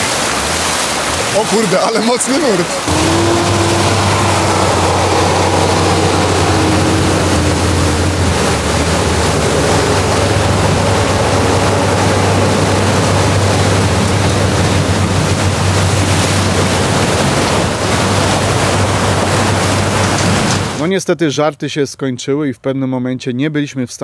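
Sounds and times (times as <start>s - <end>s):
floodwater rushing: 0.0s - 20.8s
vehicle engine humming: 2.6s - 20.8s.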